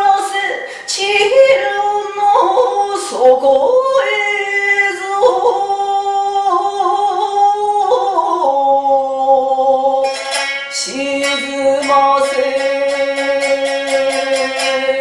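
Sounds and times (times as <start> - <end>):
plucked lute strokes: 9.9 - 15.0.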